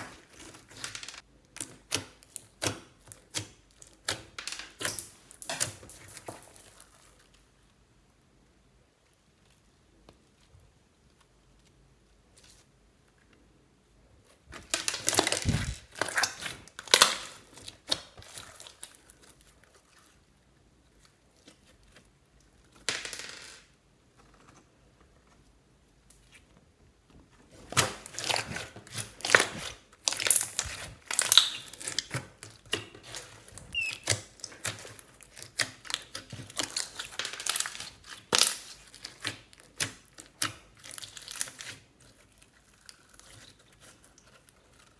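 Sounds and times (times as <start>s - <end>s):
slime squished by hand crackling: 27.6s - 44.9s.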